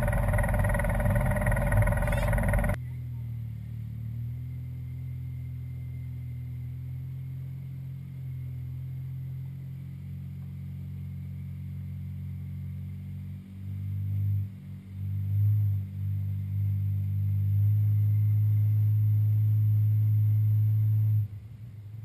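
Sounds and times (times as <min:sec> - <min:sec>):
engine idling: 0:00.0 - 0:03.2.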